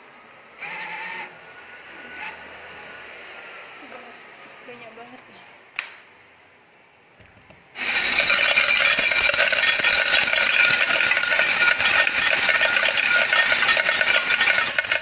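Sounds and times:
coins clattering into tray: 0:07.8 - 0:15.0.

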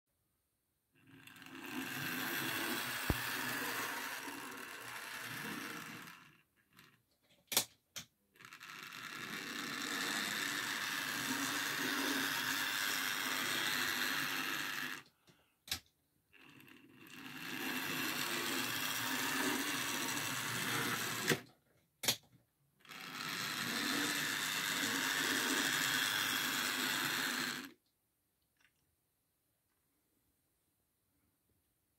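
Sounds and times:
model tram motor whirring: 0:01.0 - 0:07.0, 0:08.4 - 0:15.1, 0:16.3 - 0:21.4, 0:22.8 - 0:27.8.

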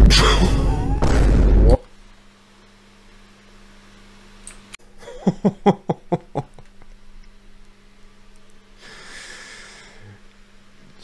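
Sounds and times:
man laughing: 0:00.1 - 0:01.0, 0:05.0 - 0:06.7.

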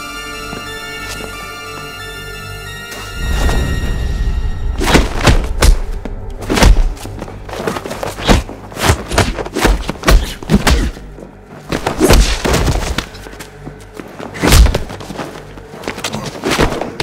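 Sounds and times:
film score music: 0:00.0 - 0:17.0
punch and kick impacts: 0:04.8 - 0:07.1, 0:08.2 - 0:11.0, 0:11.7 - 0:13.1, 0:14.4 - 0:15.0.

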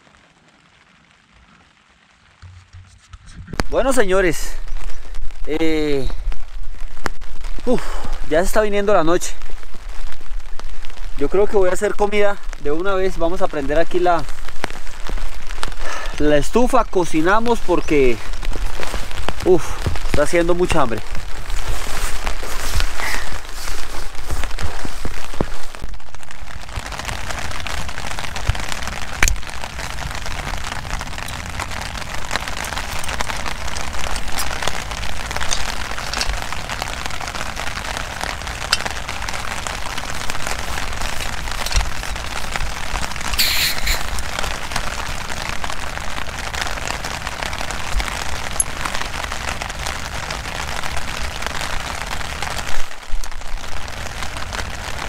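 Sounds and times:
heavy rain falling: 0:00.0 - 0:55.0
short loud hiss: 0:43.3 - 0:44.2.

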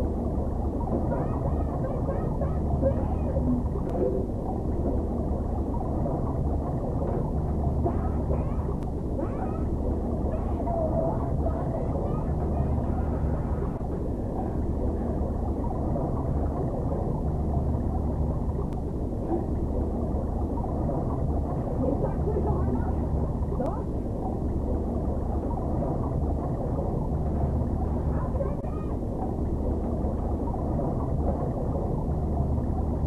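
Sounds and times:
steady low rumble: 0:00.0 - 0:33.0.

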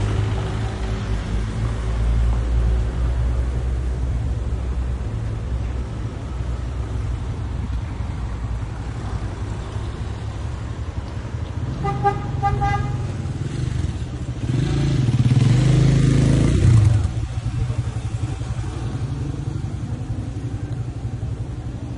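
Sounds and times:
street traffic rumble: 0:00.0 - 0:21.9
motorcycle passing close: 0:11.6 - 0:21.6
vehicle horn toots: 0:11.7 - 0:13.2.

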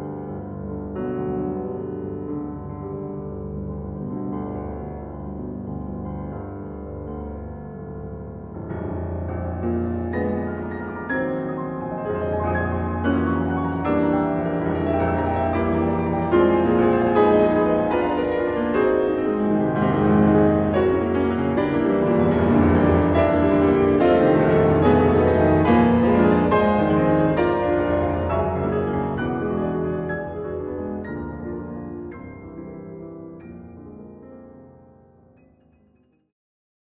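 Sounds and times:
solo piano music: 0:00.0 - 0:36.0.

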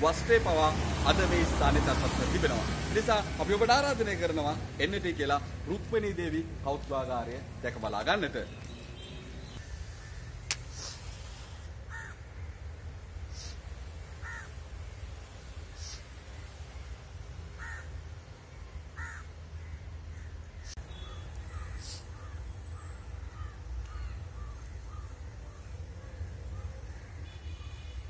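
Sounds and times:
crows cawing: 0:11.9 - 0:12.6, 0:14.2 - 0:14.6, 0:17.6 - 0:18.0, 0:19.0 - 0:26.2.

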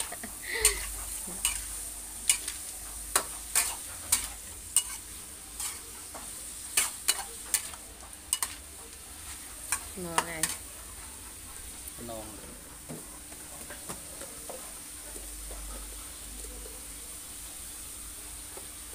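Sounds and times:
spatula scraping and striking wok: 0:00.0 - 0:10.7
food sizzling in a wok: 0:00.0 - 0:18.9.

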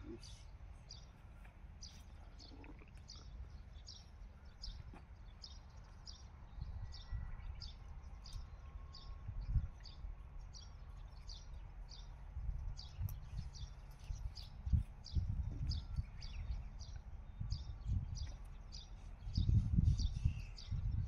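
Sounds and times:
small bird chirping: 0:00.0 - 0:21.0
wind gusting on microphone: 0:06.4 - 0:21.0.

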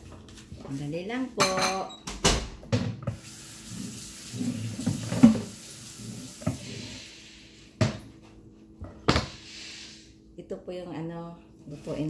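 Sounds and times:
tap water running into sink: 0:03.0 - 0:06.8.

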